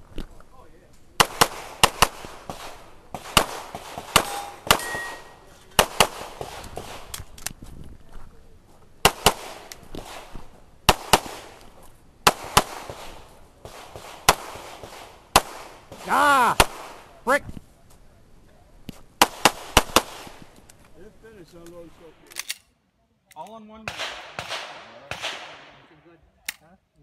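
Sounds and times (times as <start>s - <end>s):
pistol shots in quick pairs: 1.2s - 7.1s, 9.0s - 10.3s, 10.9s - 11.6s, 12.2s - 17.0s, 19.2s - 20.4s, 23.9s - 25.8s.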